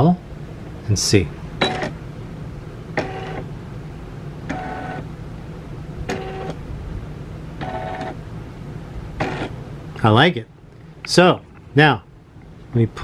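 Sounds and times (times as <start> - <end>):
steady low hum: 0.0 - 13.0
embroidery machine motor whirs: 3.0 - 3.5, 4.5 - 5.1, 6.1 - 6.6, 7.6 - 8.2, 9.2 - 9.6.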